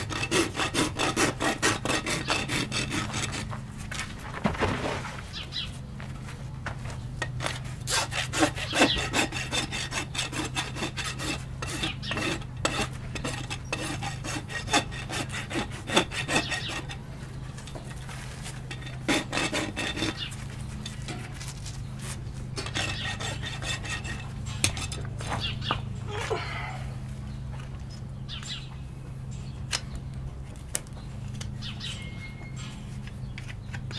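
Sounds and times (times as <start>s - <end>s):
hoof rasp scraping: 0.0s - 26.0s, 30.3s - 33.9s.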